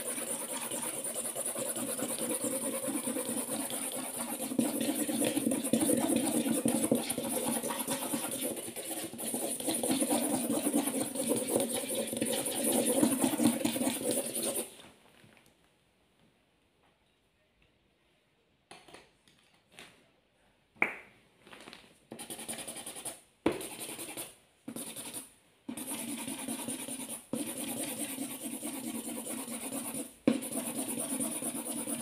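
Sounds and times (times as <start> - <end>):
marker scribbling on paper: 0.0 - 14.7, 22.1 - 32.0.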